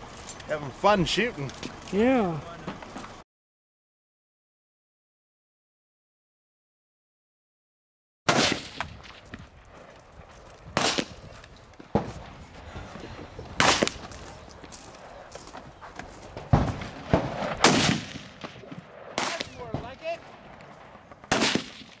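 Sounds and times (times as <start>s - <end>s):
rifle shots: 8.3s - 9.2s, 10.7s - 11.3s, 13.6s - 14.2s, 16.4s - 22.0s.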